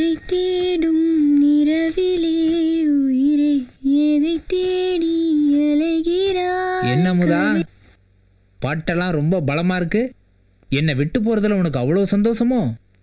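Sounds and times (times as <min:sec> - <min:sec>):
woman singing: 0:00.0 - 0:07.7.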